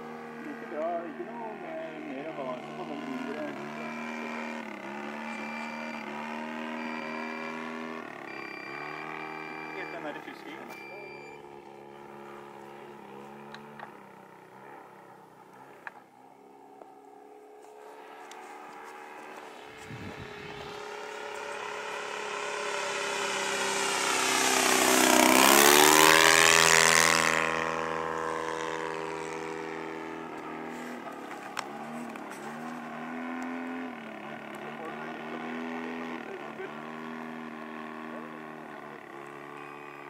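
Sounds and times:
model plane engine in flight: 0.0 - 40.0.

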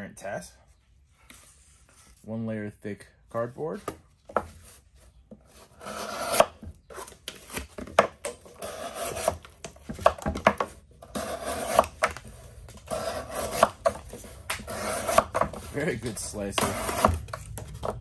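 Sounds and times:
knife scraping through cardboard: 4.6 - 7.8, 8.4 - 17.8.

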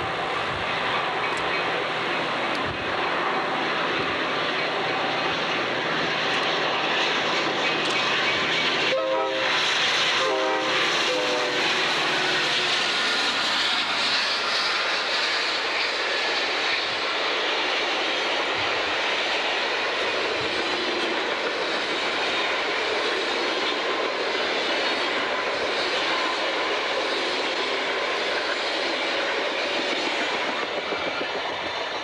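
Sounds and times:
train rushing past: 0.0 - 32.0
train horn blasts: 8.9 - 9.6, 10.2 - 11.8.

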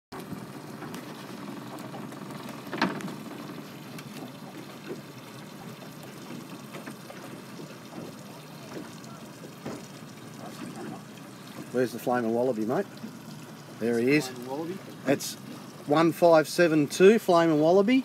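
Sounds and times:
lake water lapping and splashing: 0.1 - 18.0.

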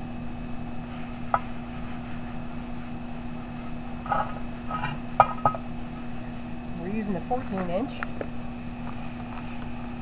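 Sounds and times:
steady low hum: 0.0 - 10.0
paper towel wiping metal lid: 0.8 - 5.1.

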